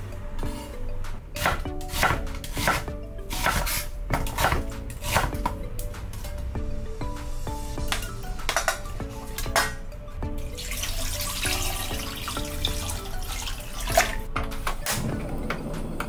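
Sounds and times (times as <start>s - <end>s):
background music: 0.0s - 16.0s
water pouring into a pot: 10.6s - 14.2s.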